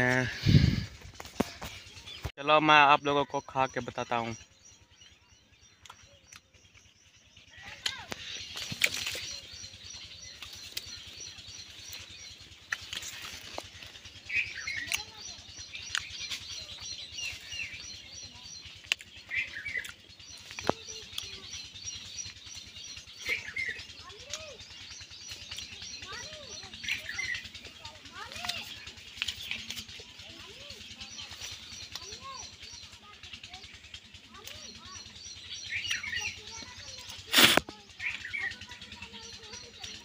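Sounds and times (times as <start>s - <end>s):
bird high-pitched chirping: 0.0s - 40.0s
sharp clicks: 5.8s - 6.5s
leaf rustles: 12.0s - 14.5s.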